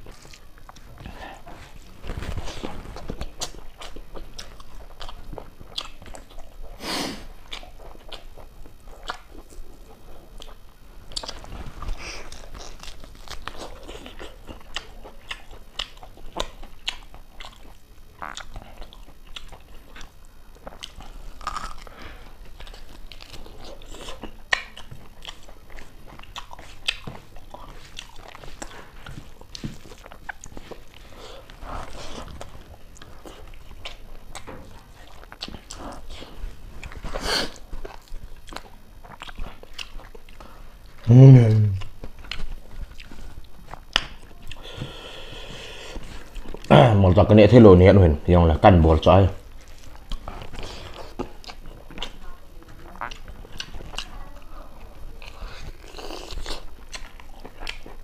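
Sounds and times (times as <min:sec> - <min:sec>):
person chewing food: 0:00.0 - 0:46.9, 0:49.1 - 0:58.0
crunching bites: 0:10.4 - 0:22.0.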